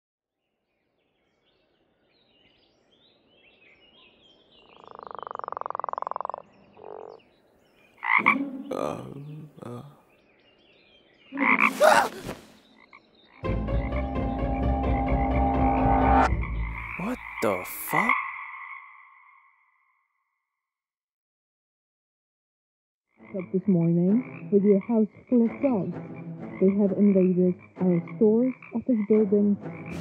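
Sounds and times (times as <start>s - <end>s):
frogs croaking: 2.8s - 10.5s, 11.2s - 20.5s, 23.1s - 30.0s
dense frog chorus: 4.6s - 7.3s, 8.0s - 9.1s, 11.3s - 12.1s, 16.6s - 19.9s.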